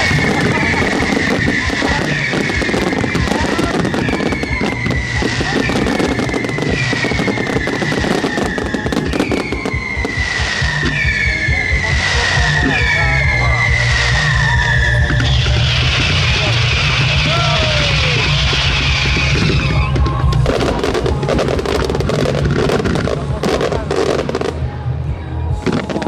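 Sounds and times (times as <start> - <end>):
high sliding whistle: 0.0 - 20.0
fireworks crackling and popping: 0.0 - 26.0.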